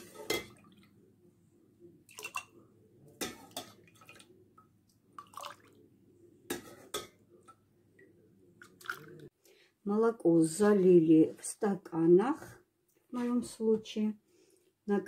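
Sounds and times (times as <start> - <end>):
milk dripping and splashing: 3.4 - 5.8, 8.6 - 9.3.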